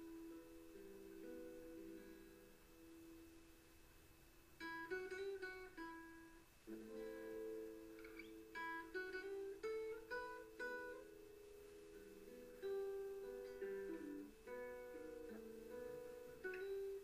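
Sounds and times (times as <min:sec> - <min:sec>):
acoustic guitar music: 0:00.0 - 0:03.9, 0:04.5 - 0:17.0.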